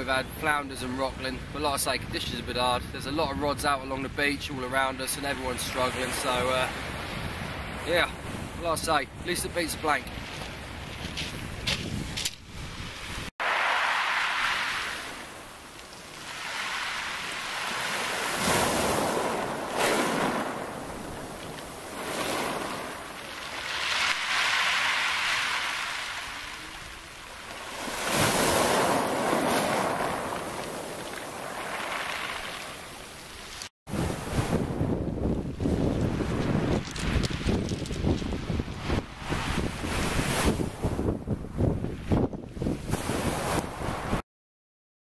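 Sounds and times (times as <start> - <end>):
waves washing over shingle: 12.8 - 41.0.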